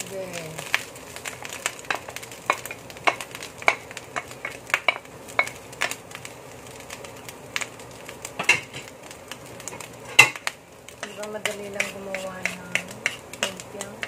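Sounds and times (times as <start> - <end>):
vegetables sizzling: 0.0 - 14.0
spatula tapping a wok: 1.7 - 6.0, 10.1 - 14.0.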